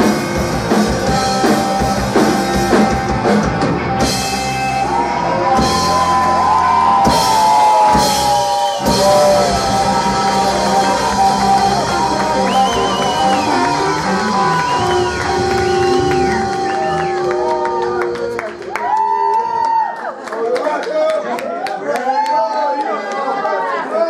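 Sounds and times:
bass guitar: 0.0s - 19.4s
drums: 0.0s - 19.9s
electric guitar sliding tones: 1.0s - 19.3s.

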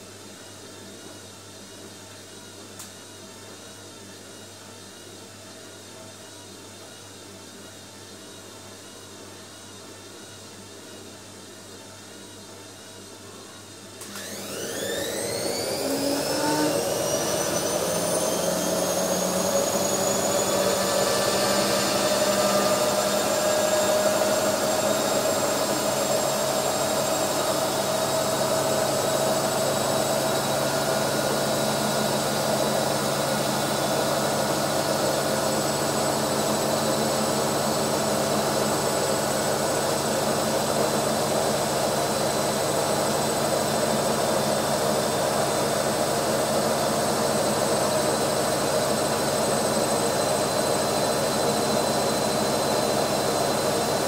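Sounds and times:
washing machine motor whine: 12.1s - 54.0s.

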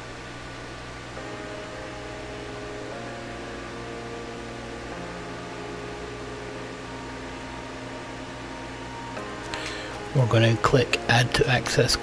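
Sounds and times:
steady hum and hiss: 0.0s - 12.0s.

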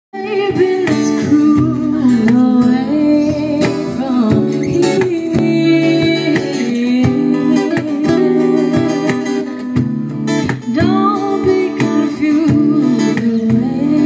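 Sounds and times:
women singing through speaker: 0.2s - 9.3s, 10.7s - 14.0s
cajon beat: 0.2s - 14.0s
strummed acoustic guitar: 0.2s - 14.0s.

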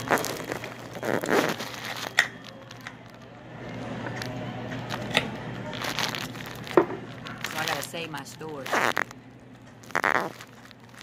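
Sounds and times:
faint rustling and crinkling: 0.0s - 3.3s, 5.7s - 11.0s.

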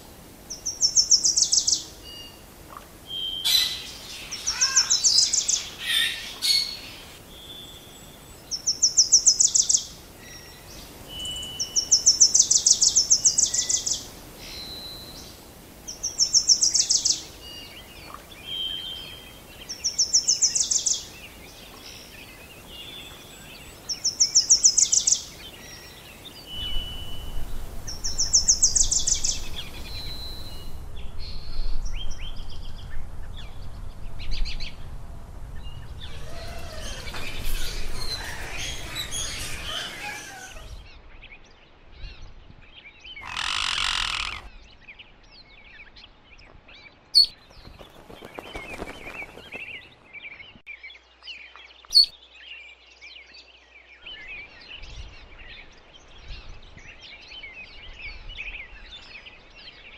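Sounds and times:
birds chirping: 0.0s - 34.9s, 35.6s - 41.7s, 43.0s - 56.4s
rustling noise: 47.3s - 50.6s.

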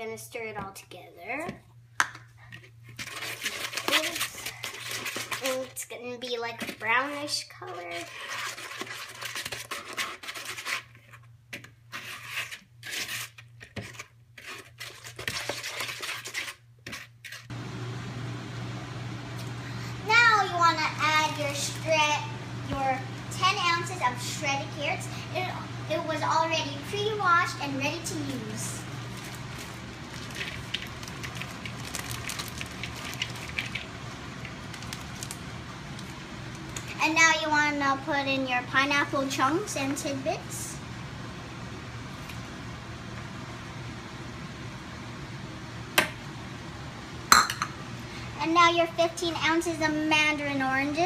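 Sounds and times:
spoon scraping in bowl: 11.9s - 17.5s
plastic bag crinkling: 28.9s - 36.9s.

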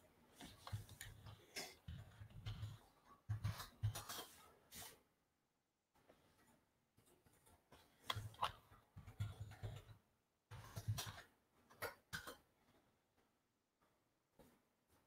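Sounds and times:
keyboard and mouse clicks: 7.4s - 10.0s.

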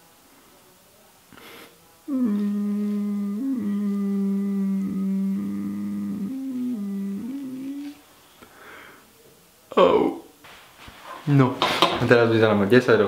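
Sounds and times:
man humming a slow tune: 2.1s - 8.0s.

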